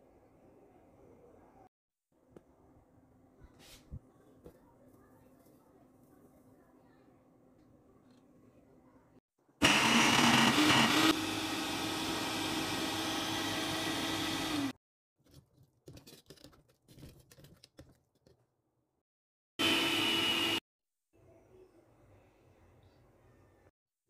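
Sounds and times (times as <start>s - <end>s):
blender motor running: 9.6s - 14.8s, 19.6s - 20.6s.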